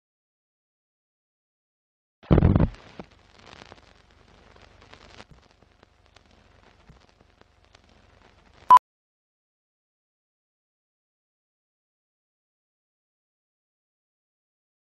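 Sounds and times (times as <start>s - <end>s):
old film crackle: 2.7s - 8.7s.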